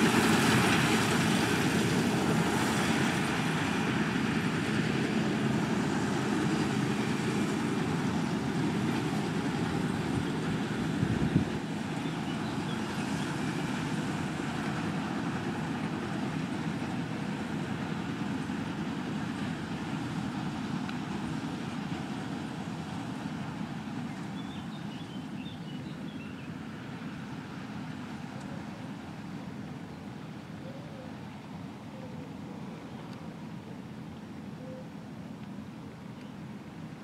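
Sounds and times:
baler rolling hay: 0.0 - 26.0
tractor diesel engine under load: 0.0 - 26.0.

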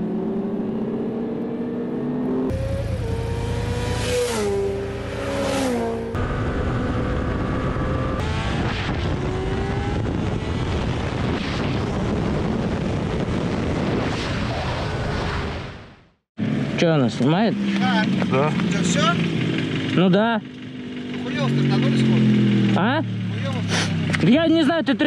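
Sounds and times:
motorcycle engine revving: 0.0 - 12.6, 16.4 - 25.0
engines accelerating hard: 0.0 - 15.4, 16.4 - 25.0
wind rush: 2.5 - 16.1.

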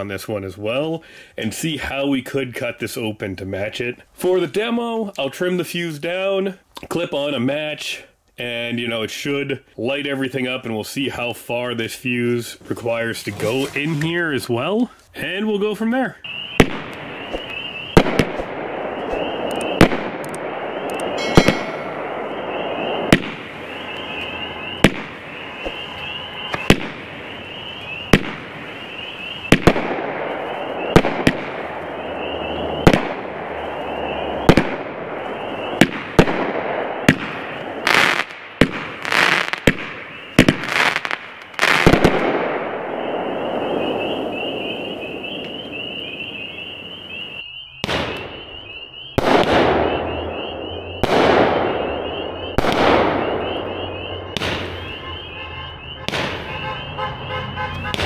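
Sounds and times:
firework crackle: 16.3 - 45.7
firework launch thumps and breaks: 16.6 - 20.3, 23.1 - 23.5, 24.8 - 25.8, 54.4 - 54.8, 56.0 - 56.5.

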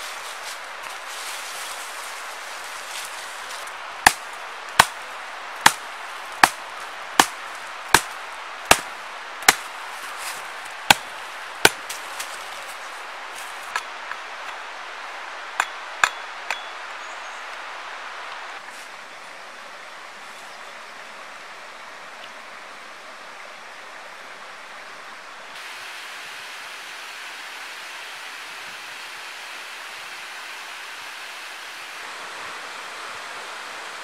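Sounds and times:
hatchet chopping a branch: 3.5 - 12.7, 15.6 - 16.7.

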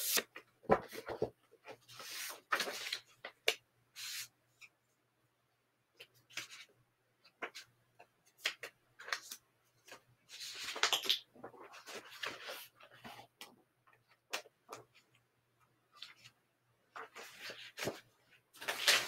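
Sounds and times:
paper rustling: 0.0 - 3.1, 17.0 - 19.0.

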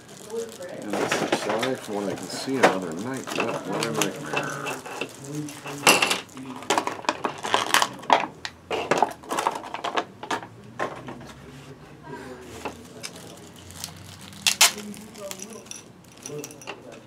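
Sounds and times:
plastic bags crinkling: 0.0 - 8.2, 12.4 - 16.7.

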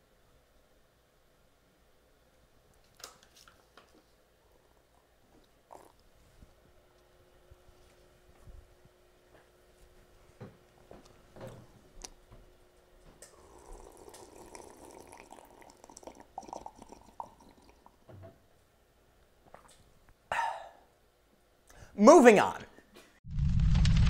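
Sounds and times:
slurping from a plastic cup: 13.2 - 17.7.

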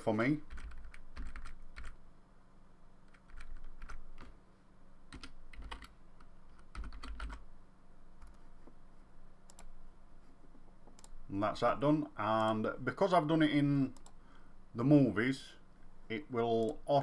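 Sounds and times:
keyboard typing: 0.4 - 2.0, 3.1 - 4.4, 5.1 - 7.5, 9.5 - 9.7.

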